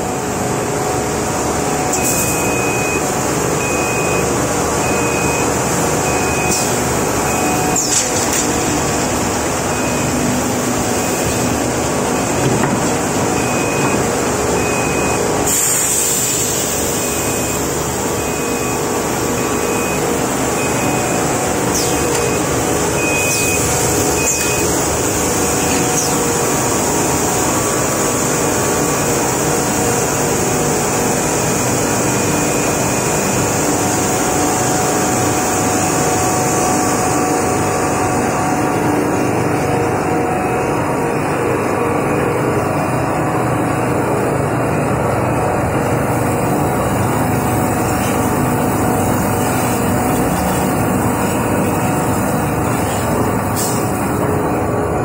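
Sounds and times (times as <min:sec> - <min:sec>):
machine hiss and hum with whine: 0:00.0 - 0:55.0
short high beep: 0:01.9 - 0:05.5.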